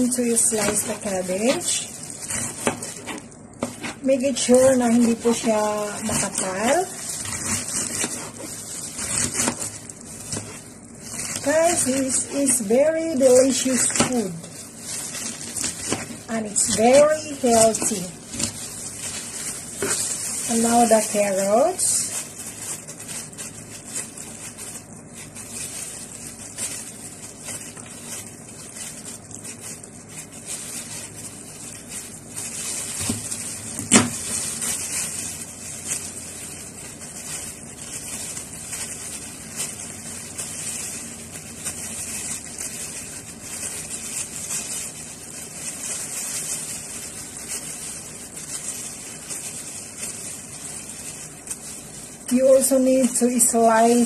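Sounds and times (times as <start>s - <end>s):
knife scraping carrot: 1.5s - 10.6s.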